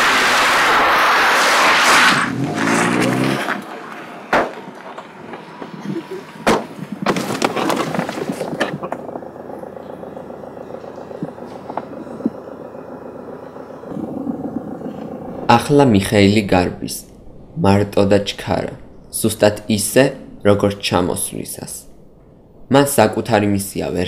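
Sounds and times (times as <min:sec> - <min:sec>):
car engine winding down: 0:00.0 - 0:16.1.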